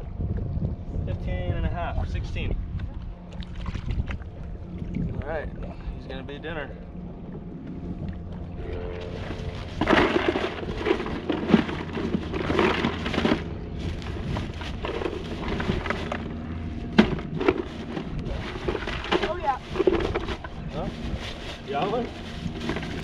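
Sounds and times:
gear knocking and rattling on deck: 0:09.1 - 0:20.8.

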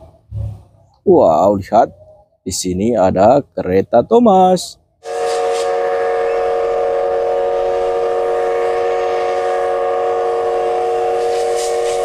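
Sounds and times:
rhythmic steam chuffs: 0:05.0 - 0:12.0
steam hissing: 0:05.0 - 0:12.0
steam locomotive whistle blast: 0:05.0 - 0:12.0.

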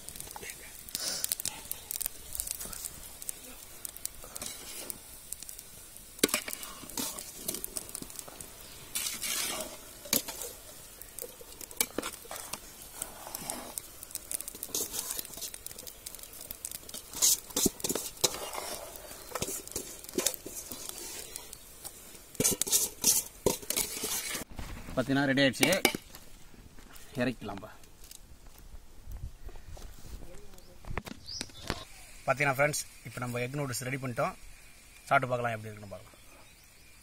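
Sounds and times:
spatula scraping metal pot: 0:08.9 - 0:10.5, 0:17.1 - 0:21.4, 0:22.4 - 0:24.5.

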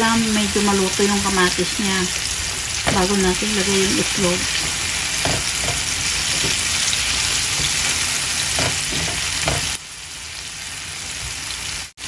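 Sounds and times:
vegetables sizzling in oil: 0:00.0 - 0:12.0
spatula stirring in pan: 0:04.5 - 0:09.8.

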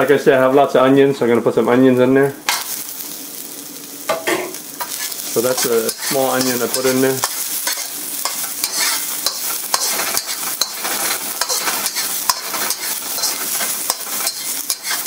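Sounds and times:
vegetables sizzling in oil: 0:01.5 - 0:15.0
metal spatula scraping a pan: 0:04.8 - 0:15.0.

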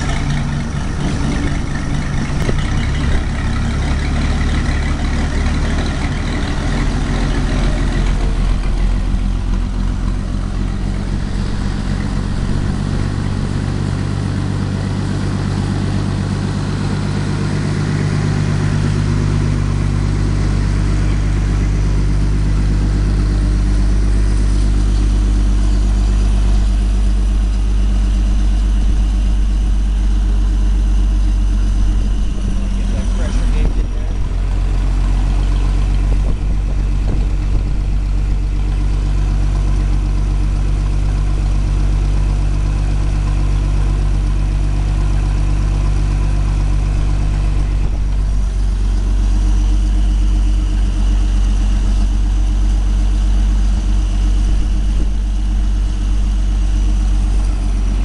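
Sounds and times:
engine running steadily: 0:00.0 - 0:58.0.

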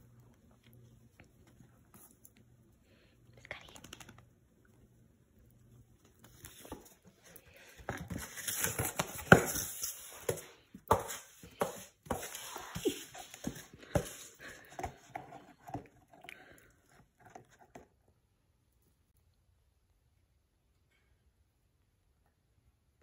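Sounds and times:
puppy playing with toys: 0:06.3 - 0:16.2.

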